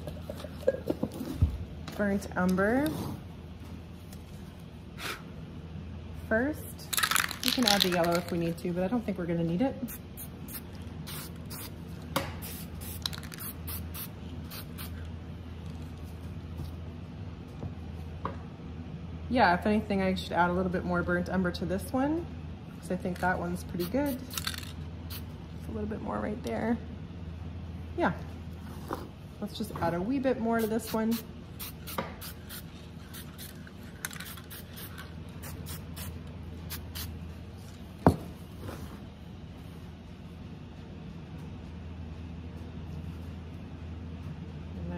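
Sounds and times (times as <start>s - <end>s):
aerosol can spraying: 9.9s - 11.8s, 12.4s - 15.0s, 30.6s - 37.1s.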